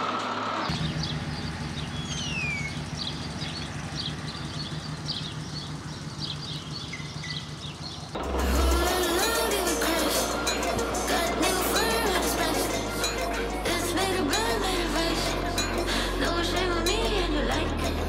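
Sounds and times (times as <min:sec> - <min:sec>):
low engine hum: 0:00.0 - 0:18.0
falling whistled bird calls: 0:00.7 - 0:08.1
small birds chirping: 0:00.7 - 0:08.2
music: 0:08.2 - 0:18.0.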